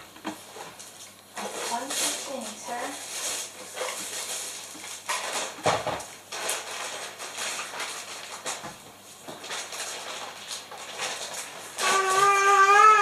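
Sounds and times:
plastic wrap and cardboard rustling: 0.0 - 13.0.

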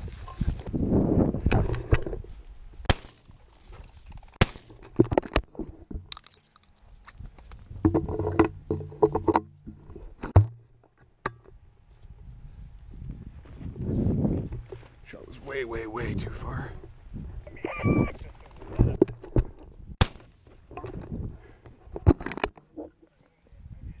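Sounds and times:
footsteps through dry grass: 0.0 - 1.4, 2.1 - 4.4, 6.7 - 7.8, 11.8 - 15.6
shotgun knocks and rustles: 2.9 - 11.6.

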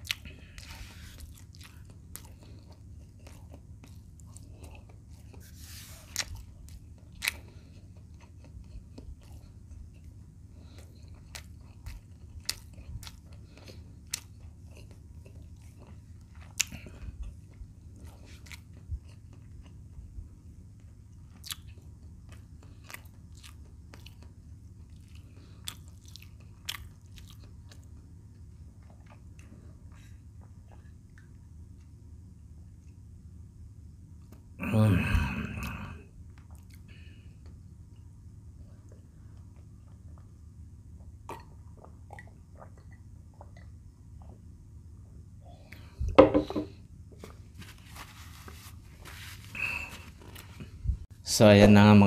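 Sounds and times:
person chewing fried food: 0.0 - 32.0, 35.6 - 45.0
steady low hum: 0.0 - 52.0.

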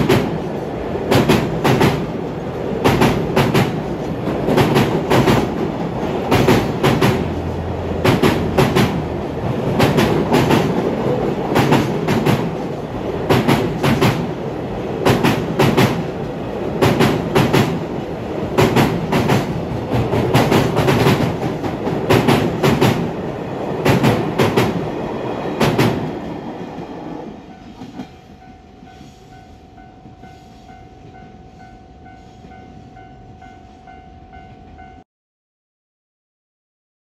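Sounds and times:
train wheels clattering over rail joints: 0.0 - 14.4, 15.0 - 17.9, 18.5 - 23.2, 23.8 - 26.9.

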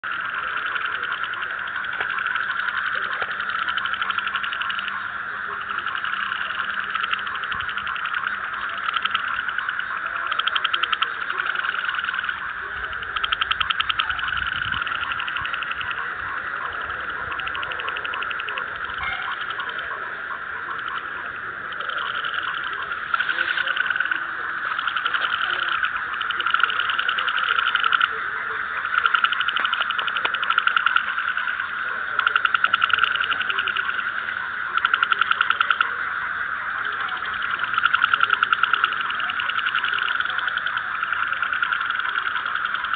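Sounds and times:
frog croaks: 0.0 - 42.9
frogs calling in chorus: 0.0 - 42.9.

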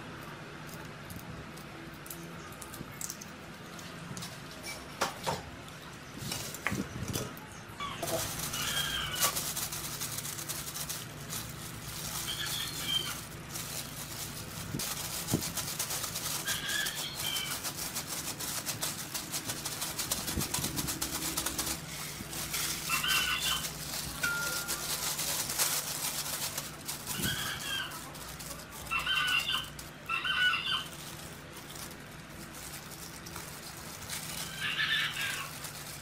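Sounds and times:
meat squelching being kneaded: 5.7 - 36.0
bird calling: 12.1 - 13.3.

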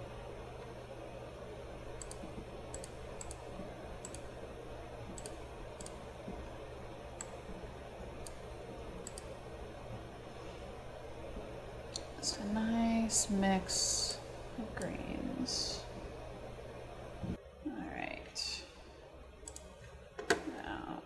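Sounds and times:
steady low hum: 0.0 - 21.0
computer mouse clicking: 2.0 - 4.4, 5.1 - 6.1, 7.2 - 7.5, 8.2 - 9.4, 19.4 - 20.4.

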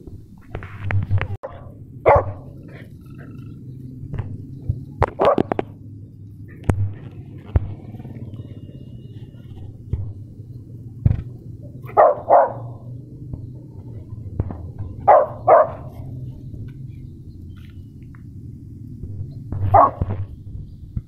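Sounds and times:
dog barking: 1.4 - 3.4, 5.2 - 5.6, 11.8 - 13.0, 15.0 - 16.1, 19.7 - 20.1.

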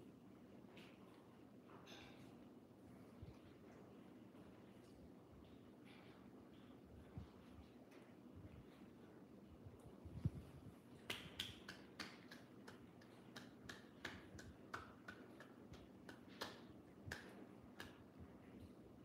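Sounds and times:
fingers snapping: 11.0 - 18.1.

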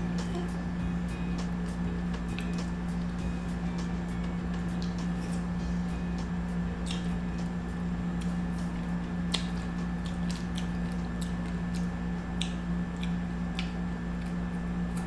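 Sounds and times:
steady low hum: 0.0 - 15.0
mouth chewing clicks and smacks: 6.8 - 7.2, 9.2 - 15.0.

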